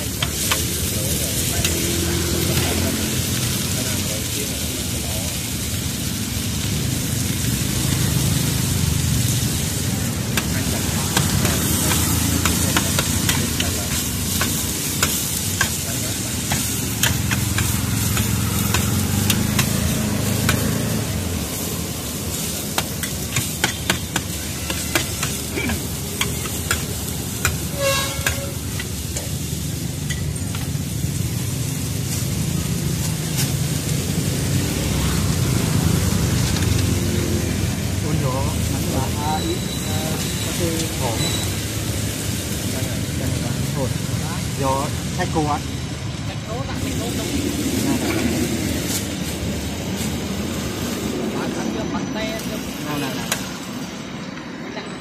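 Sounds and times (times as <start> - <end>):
food sizzling in frying pan: 0.0 - 54.0
metal spatula scraping pan: 23.0 - 28.8.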